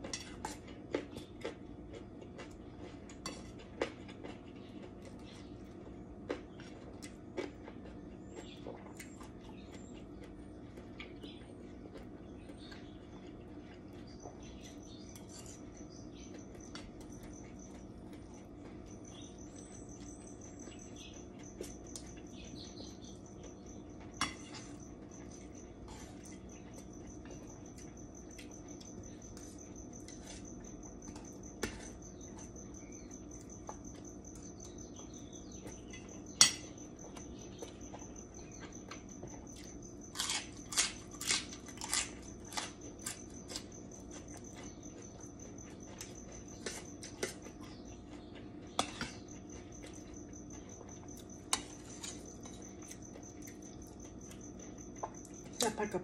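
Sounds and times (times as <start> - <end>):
crunchy vegetable chewing: 0.0 - 56.0.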